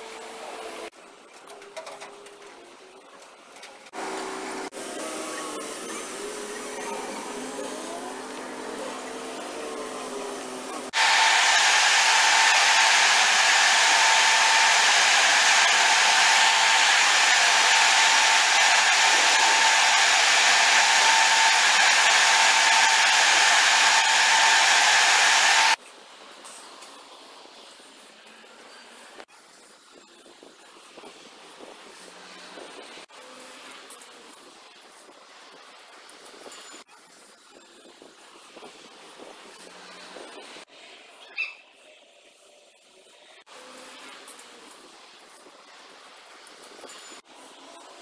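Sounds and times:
large fans rushing air with whine: 4.0 - 25.8.

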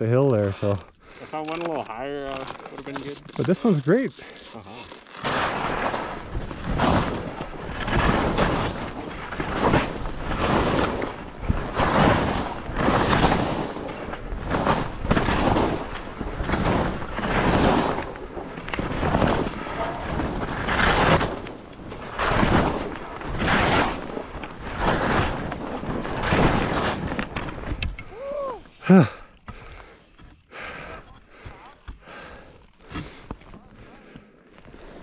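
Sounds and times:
skis swooshing through snow: 2.4 - 27.7.

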